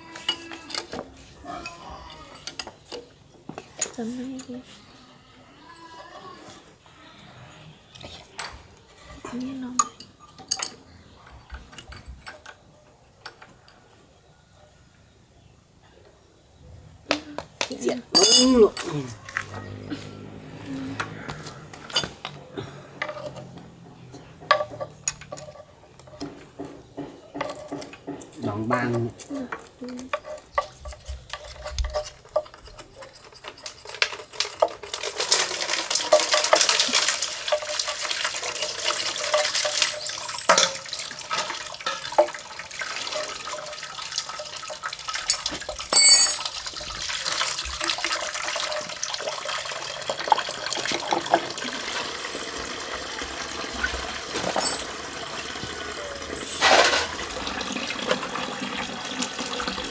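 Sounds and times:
metal parts clinking: 0.1 - 3.1, 8.2 - 13.5, 18.1 - 19.8, 20.9 - 26.3, 27.3 - 42.4, 45.1 - 47.0, 54.4 - 55.1, 56.3 - 57.2
water running and splashing: 33.8 - 59.9.

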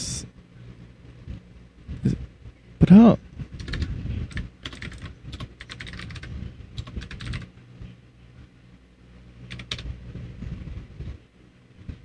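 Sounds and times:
low hum: 0.0 - 12.0
keyboard typing: 3.6 - 7.5, 9.5 - 9.9.

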